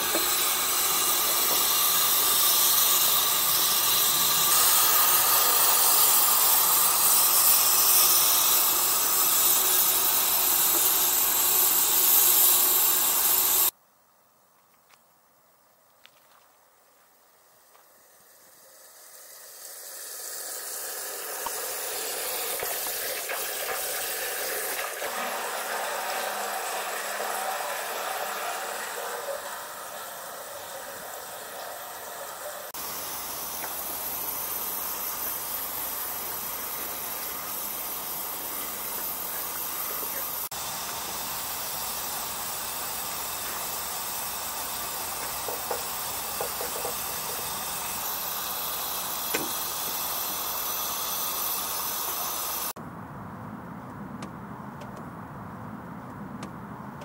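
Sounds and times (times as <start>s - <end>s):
steam hissing: 0.0s - 13.8s, 17.3s - 52.8s.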